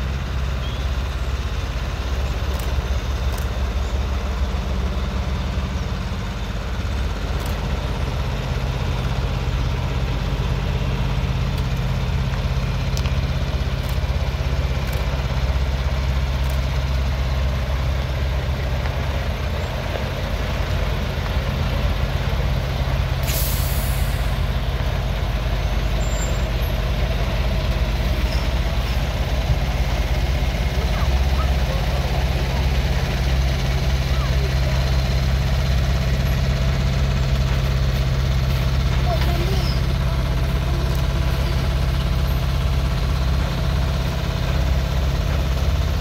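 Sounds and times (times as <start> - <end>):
truck diesel engine humming: 0.0 - 46.0
air brakes hiss: 23.2 - 24.5.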